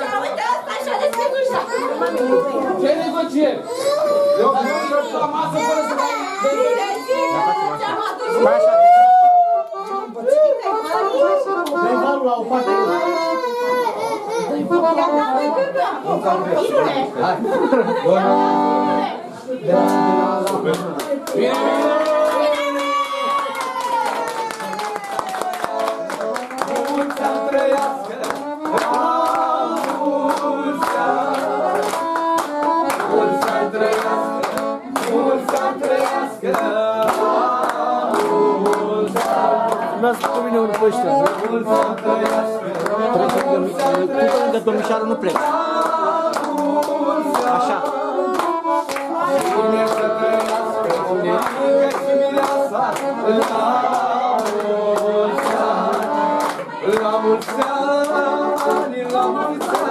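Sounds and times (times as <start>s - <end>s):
hand-clapping: 19.8s - 59.9s.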